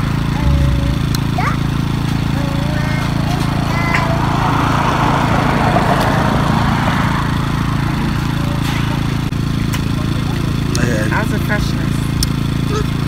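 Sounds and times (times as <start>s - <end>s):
rushing noise: 0.0s - 9.4s
engine idling: 0.0s - 13.0s.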